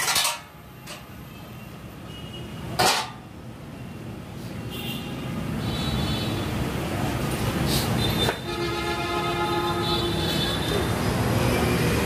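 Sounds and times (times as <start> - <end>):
metal parts clanking: 0.0 - 1.1, 2.8 - 3.2.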